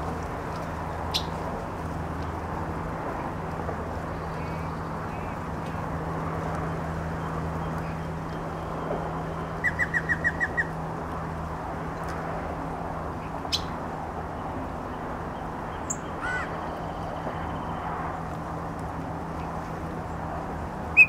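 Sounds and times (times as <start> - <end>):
bird singing: 9.4 - 10.8, 15.3 - 17.8.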